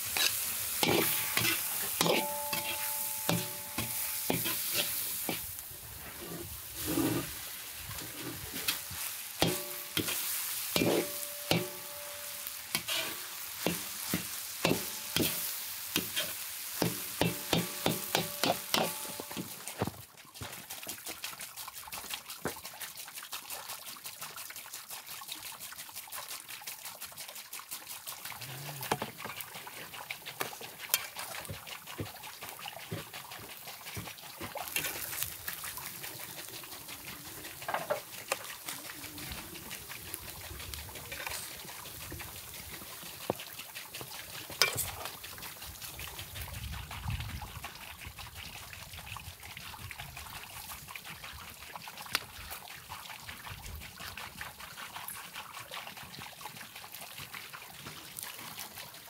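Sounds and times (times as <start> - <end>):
grill crackling and sizzling: 0.0 - 20.8, 28.1 - 47.2
metal utensils clicking on plate: 0.2 - 4.9, 44.6 - 45.0.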